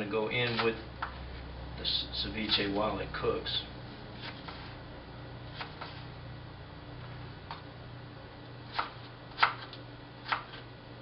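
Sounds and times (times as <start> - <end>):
knife chopping on cutting board: 0.4 - 1.1, 8.7 - 10.6.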